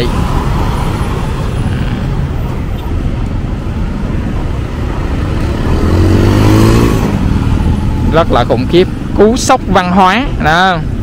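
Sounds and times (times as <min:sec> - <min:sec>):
street traffic noise: 0:00.0 - 0:11.0
vehicle engine accelerating: 0:04.5 - 0:08.8.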